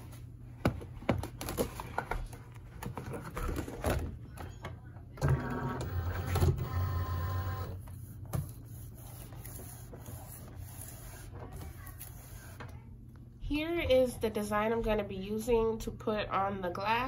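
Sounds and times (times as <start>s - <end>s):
cutting machine motor whirring: 5.2s - 7.8s.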